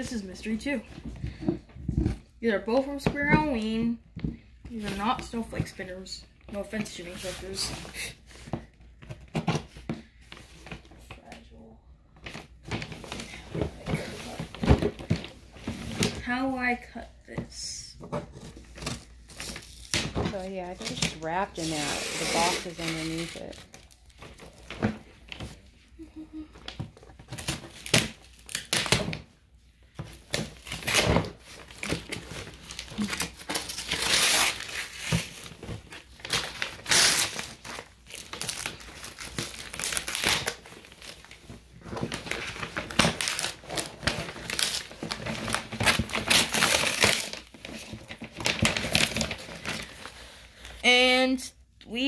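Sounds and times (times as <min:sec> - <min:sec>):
paper tearing and crumpling: 0:20.7 - 0:23.8, 0:30.6 - 0:50.7.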